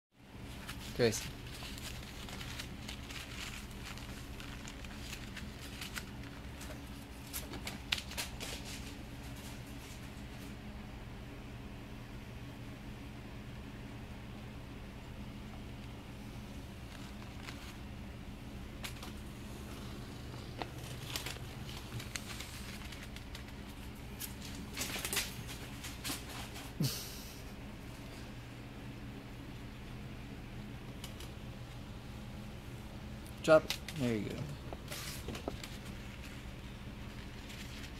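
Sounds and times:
steady low hum: 0.2 - 37.9
toy rustling and crinkling: 0.4 - 10.5, 16.6 - 26.8, 33.4 - 37.9
cat playing on tiled floor: 0.4 - 10.6, 16.5 - 27.4, 33.6 - 37.9.

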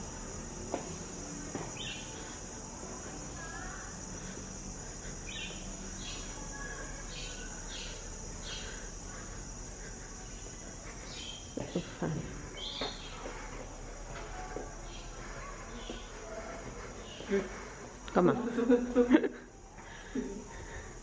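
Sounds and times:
cicadas droning: 0.0 - 21.0
bird chirping: 5.2 - 9.3.

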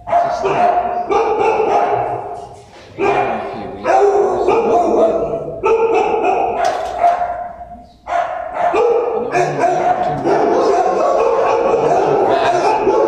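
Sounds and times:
many dogs barking: 0.0 - 13.0.

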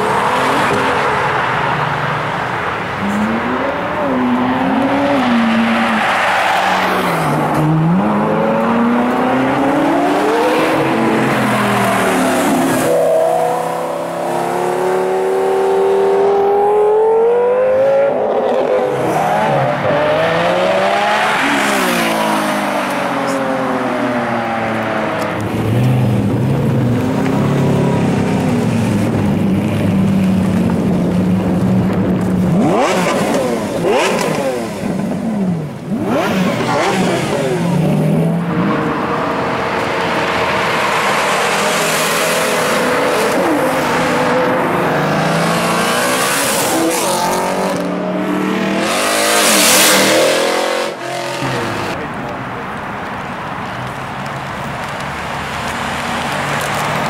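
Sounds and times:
cars accelerating hard: 0.0 - 52.3.

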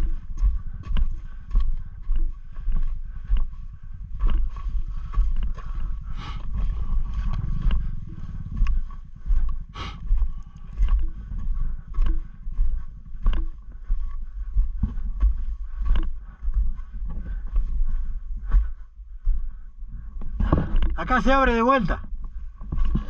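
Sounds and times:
motorcycle engine revving: 5.0 - 13.7.

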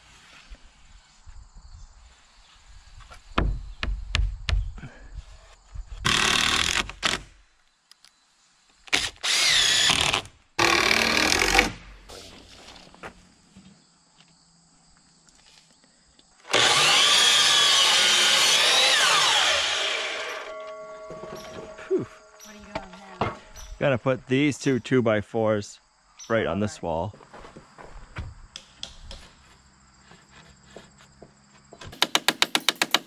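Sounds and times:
miter saw whining: 16.4 - 22.8
power drill running: 16.5 - 20.6.

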